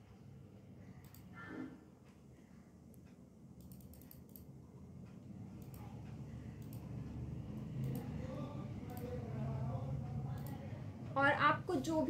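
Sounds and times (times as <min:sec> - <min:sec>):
faint computer mouse clicks: 0:02.9 - 0:04.5, 0:06.6 - 0:06.9.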